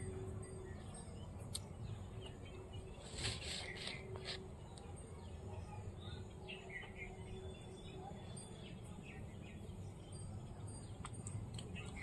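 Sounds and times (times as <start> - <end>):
small birds chirping: 0.0 - 12.0
rustling: 3.0 - 4.4.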